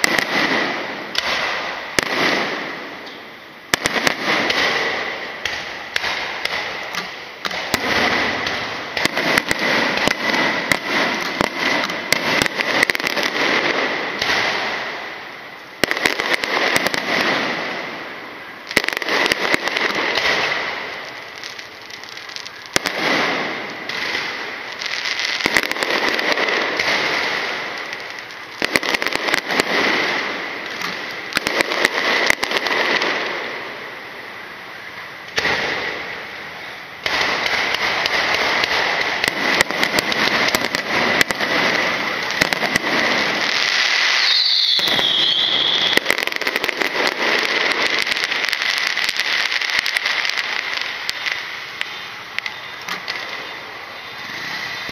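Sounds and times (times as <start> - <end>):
fireworks crackling and banging: 0.0 - 54.9
falling whistle: 44.1 - 46.1.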